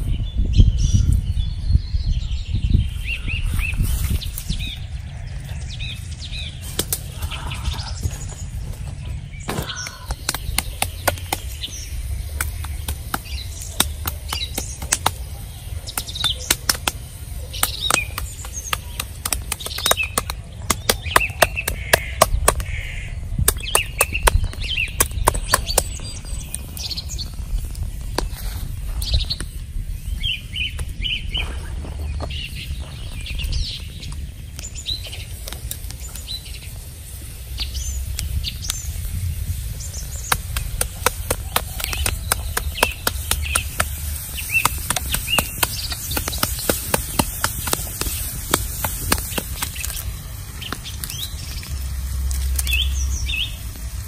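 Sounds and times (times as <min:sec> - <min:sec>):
birds chirping: 0:00.0 - 0:54.0
pestle pounding on stone: 0:40.3 - 0:44.0, 0:44.6 - 0:49.7.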